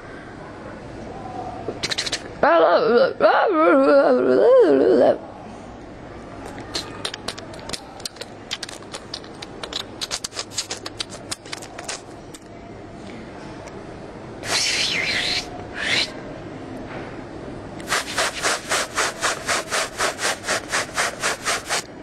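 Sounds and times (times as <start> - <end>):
chalk scratching strokes: 14.4 - 16.1, 17.8 - 21.9
chalk tapping on board: 17.8 - 21.8.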